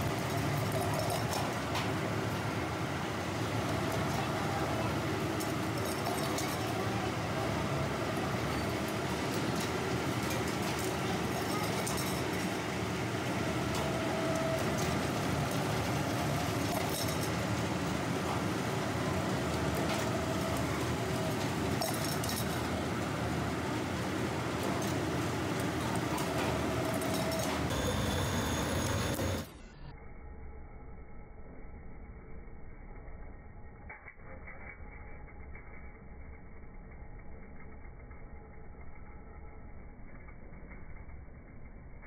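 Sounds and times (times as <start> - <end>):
workshop machinery running: 0.0 - 29.8.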